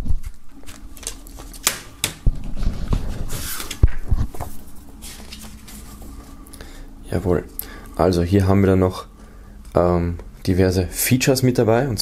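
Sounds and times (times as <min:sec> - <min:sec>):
paper booklet rustle: 0:02.8 - 0:06.4.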